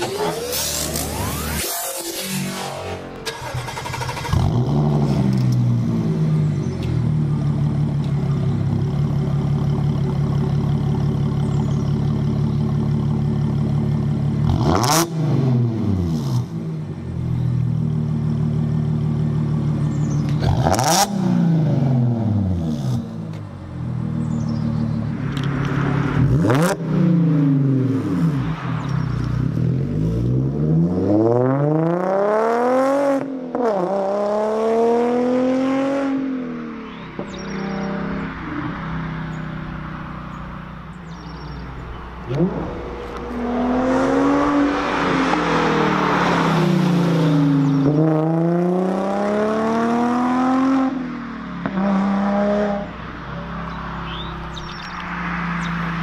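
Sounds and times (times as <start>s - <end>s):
engine revving: 0.0s - 6.9s, 8.9s - 16.8s, 18.6s - 23.2s, 24.2s - 40.1s, 41.0s - 53.0s
car accelerating away: 0.0s - 8.1s, 23.9s - 53.0s
car engine starting and idling: 0.0s - 30.5s.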